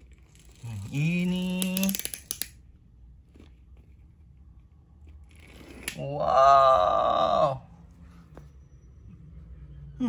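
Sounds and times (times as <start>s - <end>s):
toy car spring motor ratcheting: 0.1s - 2.6s.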